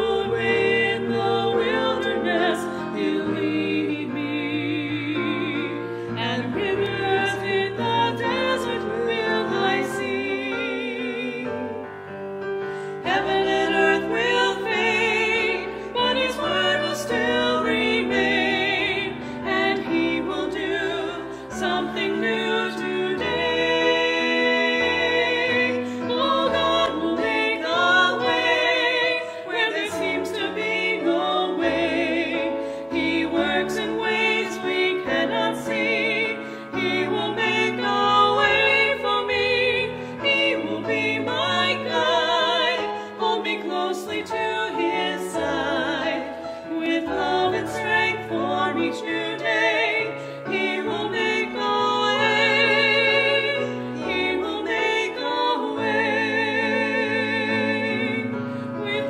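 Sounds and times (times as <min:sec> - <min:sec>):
women singing a duet: 0:00.0 - 0:12.2, 0:12.9 - 0:59.0
piano accompaniment: 0:00.0 - 0:59.0.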